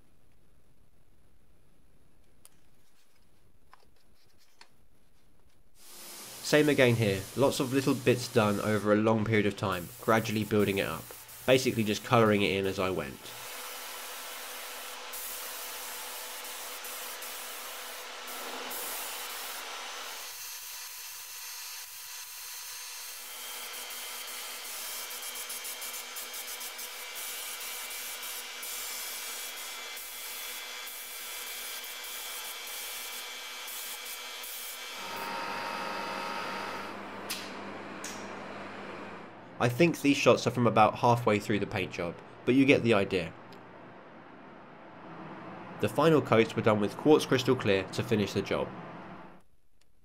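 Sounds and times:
spray gun hissing: 5.8s - 20.3s.

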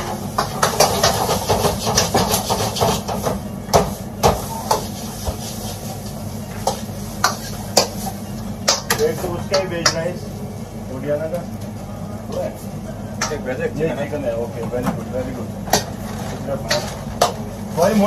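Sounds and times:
food frying: 0.0s - 10.1s.

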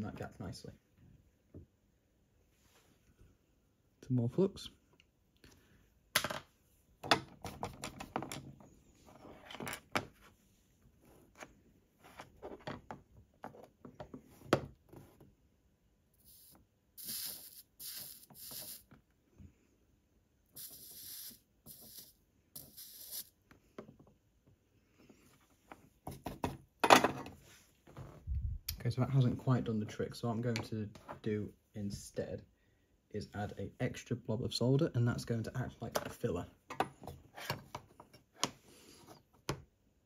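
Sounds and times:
flux sizzling under soldering iron: 16.2s - 18.9s, 20.6s - 23.4s.

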